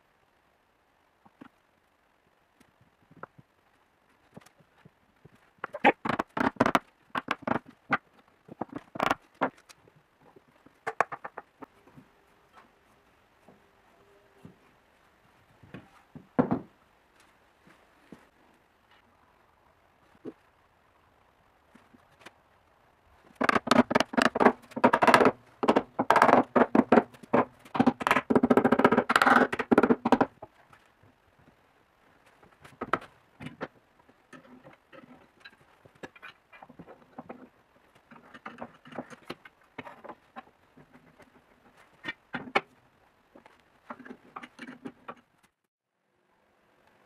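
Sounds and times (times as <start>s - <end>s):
wooden parts knocking and scraping: 4.1s - 12.8s, 15.6s - 16.8s, 23.2s - 31.6s, 32.2s - 45.6s.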